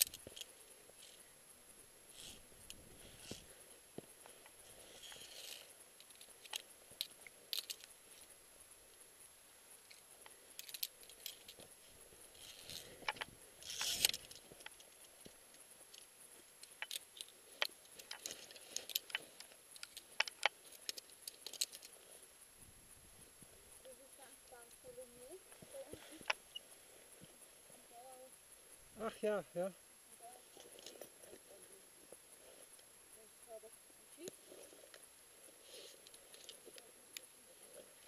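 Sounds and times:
metal climbing gear clinking: 0.0s - 1.3s, 2.1s - 8.4s, 9.8s - 22.2s, 30.4s - 32.9s, 34.3s - 38.0s.

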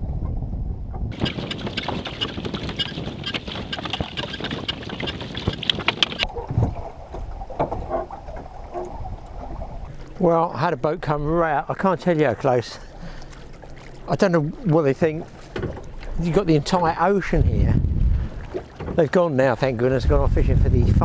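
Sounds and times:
wind on microphone: 0.0s - 10.1s, 15.6s - 19.0s, 19.6s - 21.0s
water splashing around boat: 1.0s - 21.0s.

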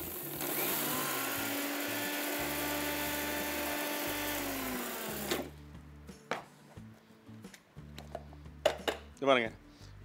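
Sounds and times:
mixer grinder whining: 0.0s - 5.5s.

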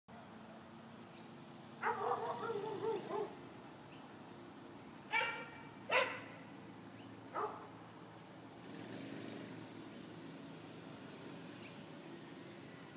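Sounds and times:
dog barking: 1.8s - 3.4s, 5.1s - 6.4s, 7.3s - 7.7s.

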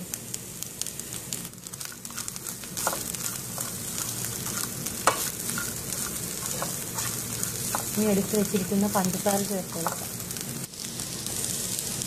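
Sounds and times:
food sizzling in hot ghee: 0.0s - 12.0s
plastic spatula stirring: 2.1s - 8.0s.

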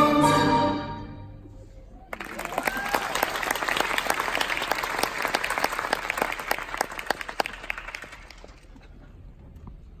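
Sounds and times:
audience applauding: 2.1s - 8.8s.

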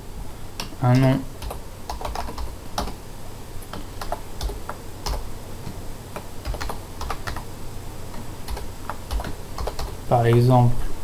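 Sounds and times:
computer keyboard typing: 0.6s - 3.0s, 3.7s - 5.2s, 6.2s - 7.5s, 8.1s - 10.0s.

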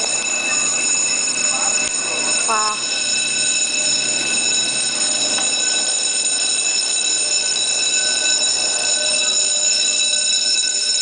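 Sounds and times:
fire alarm high-pitched tone: 0.0s - 11.0s.

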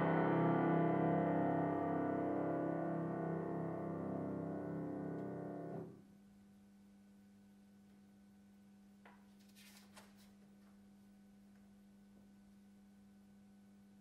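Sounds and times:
grand piano chord: 0.0s - 6.0s
low hum: 0.0s - 8.9s
sheet music page turning: 9.0s - 10.8s.

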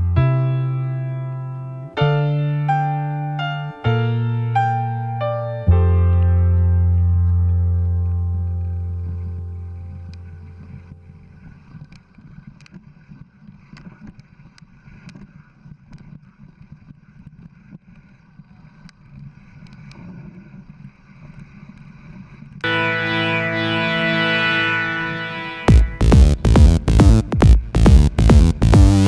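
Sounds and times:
piano music: 0.0s - 11.4s, 22.6s - 27.3s
music: 0.0s - 11.5s, 22.6s - 29.0s.

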